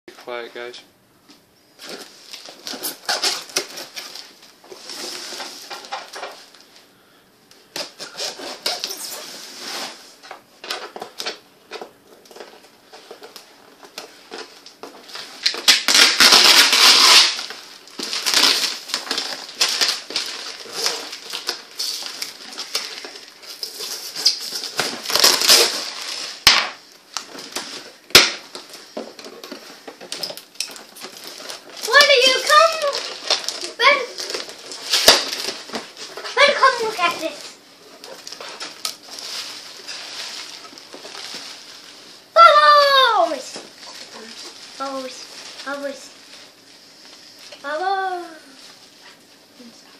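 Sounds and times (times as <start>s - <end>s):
tape ripping off cardboard box: 1.8s - 6.3s, 7.7s - 11.4s, 15.1s - 29.4s, 30.0s - 37.0s
knife slitting packing tape: 15.4s - 17.5s.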